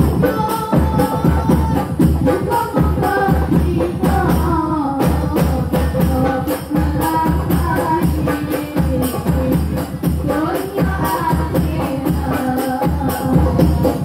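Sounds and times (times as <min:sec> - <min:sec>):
frame drums beating: 0:00.0 - 0:14.0
women singing devotional songs: 0:00.0 - 0:14.0.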